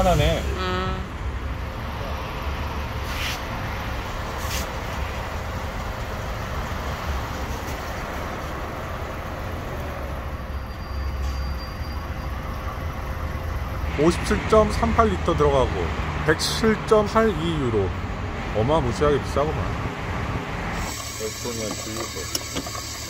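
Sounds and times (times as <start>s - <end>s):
fuel pump hum: 0.0s - 10.7s, 19.6s - 23.0s
short hisses: 3.0s - 3.5s, 4.4s - 4.8s.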